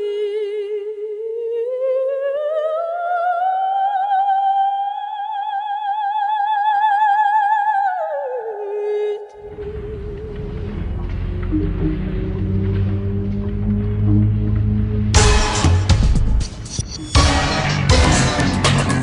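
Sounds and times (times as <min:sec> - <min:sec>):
operatic soprano singing: 0:00.0 - 0:13.0
music: 0:09.4 - 0:19.0.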